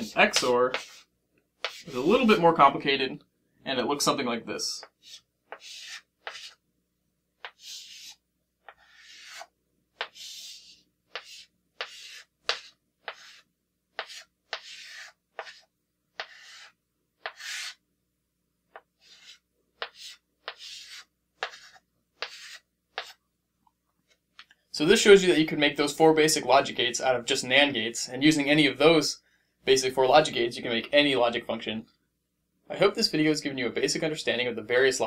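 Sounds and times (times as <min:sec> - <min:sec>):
chalk scratching on blackboard: 0:00.0 - 0:02.2, 0:04.8 - 0:06.6, 0:07.4 - 0:17.8, 0:18.7 - 0:23.2.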